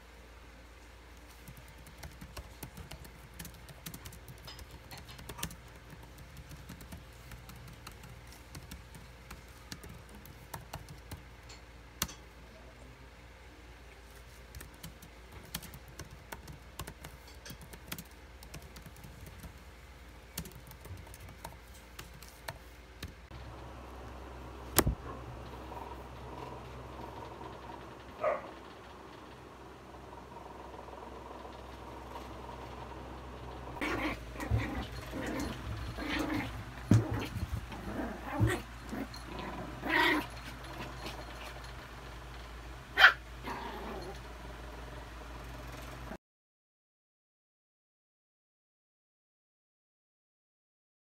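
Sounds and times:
laptop keyboard typing: 0:01.4 - 0:11.2, 0:14.5 - 0:19.6, 0:20.3 - 0:23.1.

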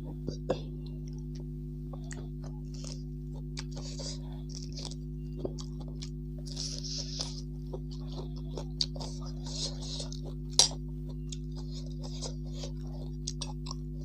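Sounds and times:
person chewing: 0:00.0 - 0:14.0
steady low hum: 0:00.0 - 0:14.0.

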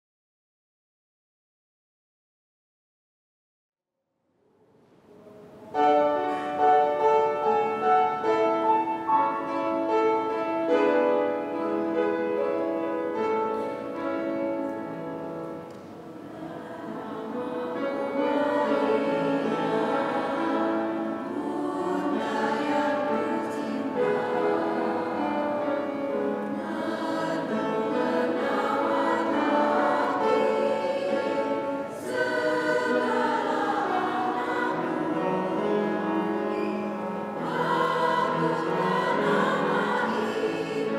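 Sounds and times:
choir singing a hymn: 0:05.7 - 0:40.9.

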